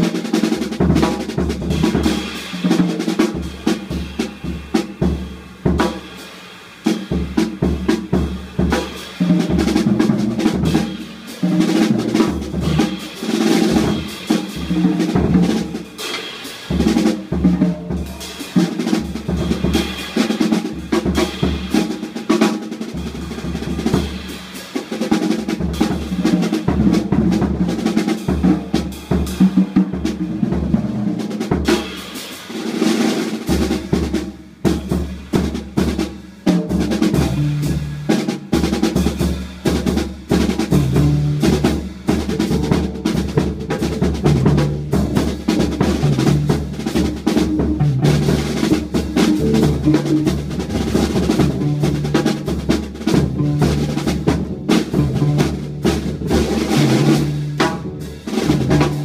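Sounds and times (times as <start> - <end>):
drum kit rolls and rim hits: 0.0 - 59.0
upright double bass notes: 40.7 - 59.0.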